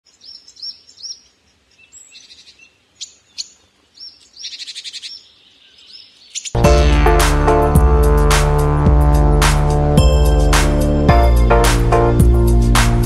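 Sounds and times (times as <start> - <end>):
small songbird singing: 0.1 - 6.6.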